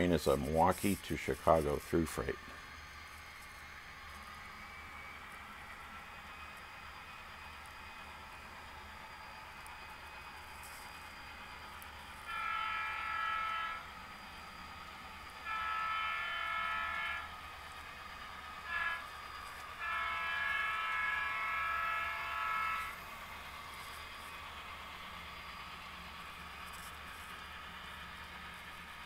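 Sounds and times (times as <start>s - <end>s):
diesel locomotive horn blasts: 0.0s - 3.3s, 11.7s - 24.4s.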